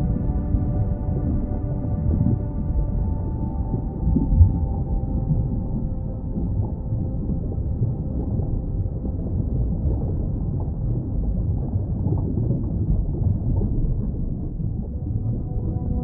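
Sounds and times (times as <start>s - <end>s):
underwater low rumbling: 0.0s - 16.0s.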